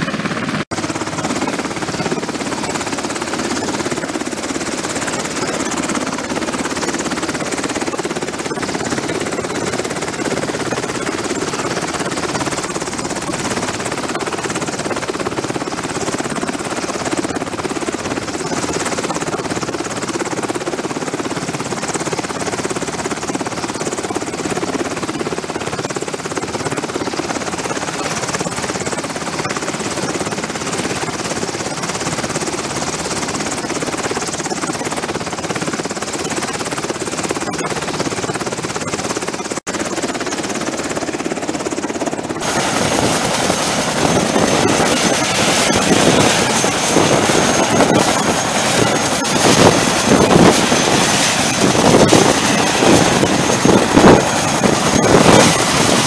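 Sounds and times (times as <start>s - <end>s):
helicopter rotor and turbine noise: 0.0s - 56.0s
high steady whine: 42.3s - 56.0s.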